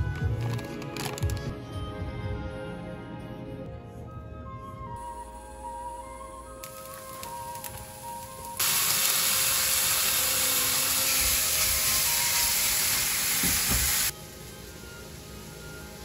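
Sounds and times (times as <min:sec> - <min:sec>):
bacon sizzling in frying pan: 0:06.6 - 0:16.0.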